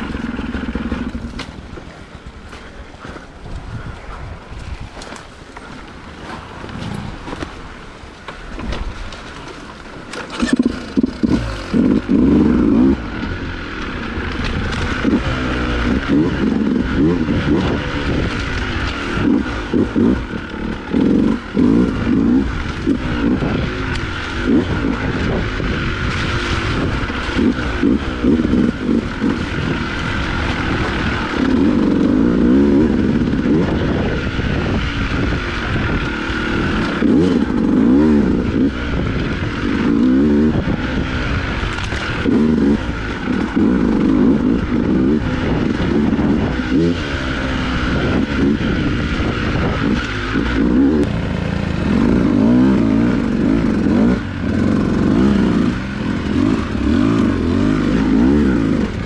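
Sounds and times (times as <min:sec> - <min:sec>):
dirt bike engine revving: 0:00.0 - 0:04.2, 0:10.1 - 0:59.0
knocks and clatter from riding: 0:00.0 - 0:12.5.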